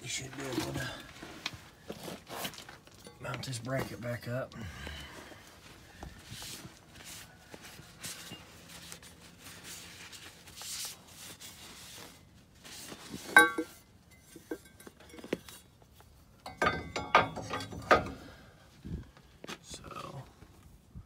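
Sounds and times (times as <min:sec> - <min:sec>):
metallic clink: 0:13.4 - 0:15.4, 0:16.4 - 0:18.1.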